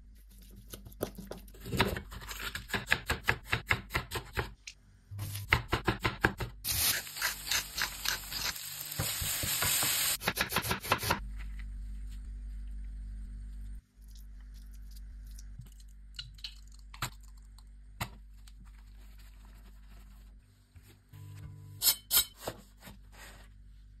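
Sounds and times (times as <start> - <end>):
low steady hum: 11.2 - 24.0.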